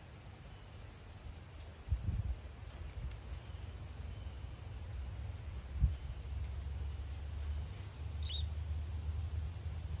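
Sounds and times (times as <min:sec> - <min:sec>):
wind buffeting microphone: 0:01.8 - 0:03.2.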